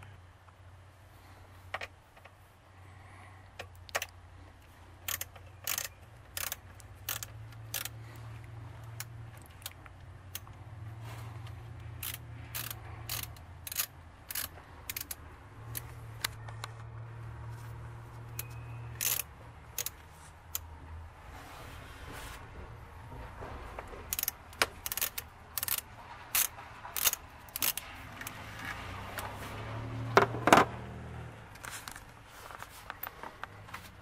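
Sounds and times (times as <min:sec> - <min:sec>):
plastic parts clacking: 0:03.5 - 0:10.6, 0:11.4 - 0:16.9, 0:18.2 - 0:20.7, 0:23.2 - 0:29.4
hand ratchet clicking: 0:05.0 - 0:08.0, 0:11.8 - 0:16.3, 0:18.3 - 0:20.7, 0:24.0 - 0:29.3.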